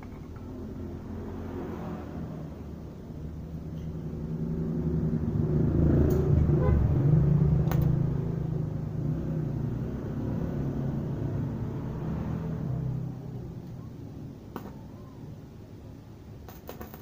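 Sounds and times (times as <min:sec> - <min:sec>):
motor scooters passing: 0:04.2 - 0:14.1.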